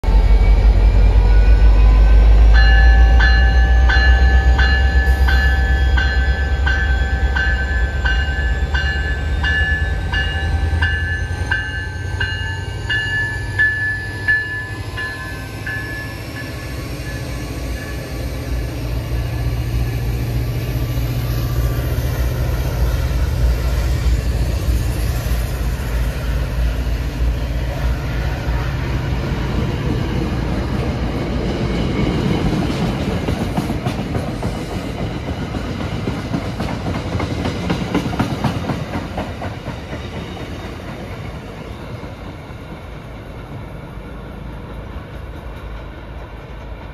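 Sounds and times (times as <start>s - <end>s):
rising whine: 0.0s - 30.6s
locomotive bell ringing: 0.5s - 19.4s.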